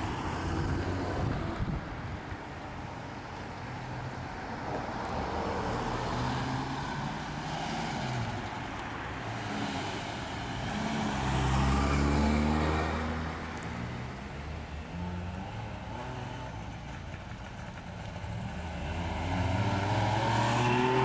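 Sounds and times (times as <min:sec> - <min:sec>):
cars driving past: 0:00.0 - 0:21.0.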